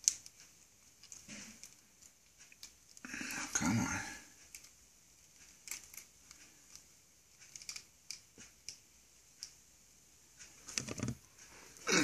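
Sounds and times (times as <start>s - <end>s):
plastic parts clicking: 0.0s - 3.0s, 5.4s - 8.8s.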